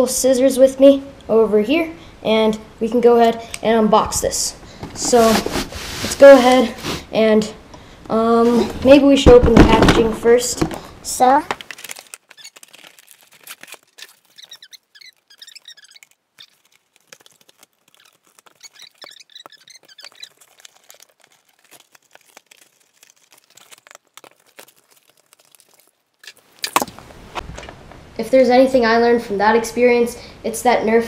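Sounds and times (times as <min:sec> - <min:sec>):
packaging crinkling and rustling: 0:08.4 - 0:27.8
scissors snipping packaging: 0:11.5 - 0:26.9.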